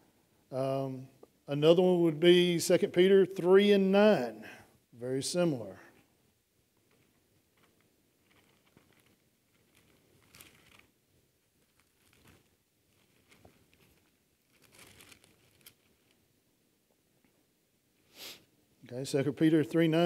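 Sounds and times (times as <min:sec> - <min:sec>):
thin pages rustling: 0:06.8 - 0:16.2.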